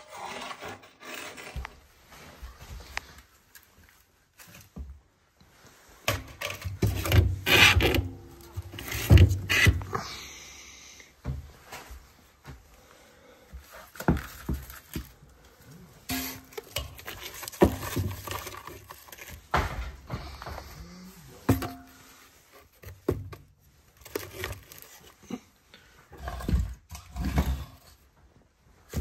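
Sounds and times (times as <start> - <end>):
logs knocking and scraping in stove: 6.0 - 9.9, 16.1 - 20.8, 21.4 - 23.5.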